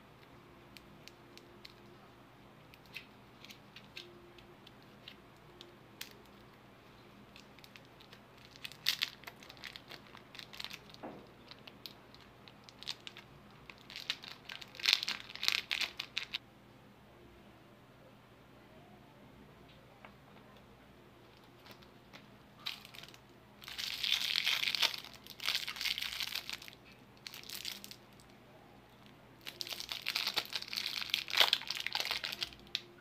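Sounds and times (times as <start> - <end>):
plastic wrapper crinkling: 7.3 - 16.4, 21.4 - 21.9, 22.6 - 28.3, 29.4 - 32.9.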